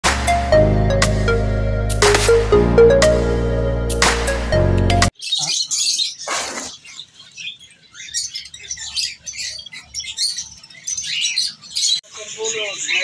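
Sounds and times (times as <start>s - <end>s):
small birds chirping: 5.1s - 13.0s.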